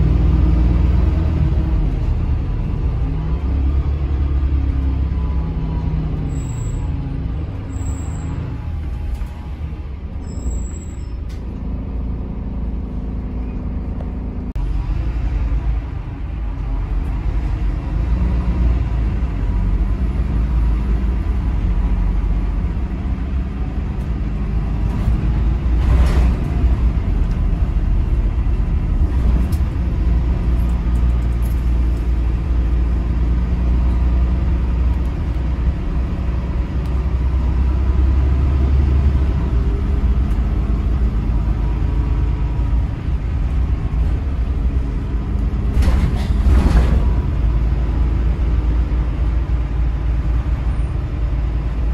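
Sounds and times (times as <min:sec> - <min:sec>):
bus diesel engine rumbling: 0:00.0 - 0:51.9
road noise: 0:00.0 - 0:51.9
short clunks or rattles: 0:45.6 - 0:47.4.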